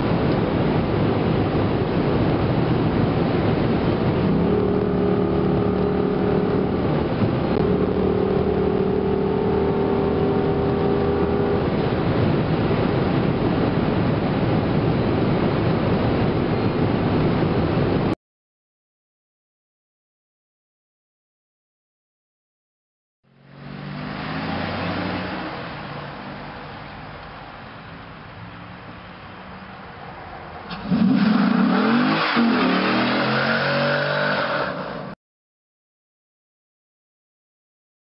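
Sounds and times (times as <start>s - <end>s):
car engine drone: 0.0s - 18.2s, 23.3s - 35.2s
tyre and wind noise: 0.0s - 18.2s.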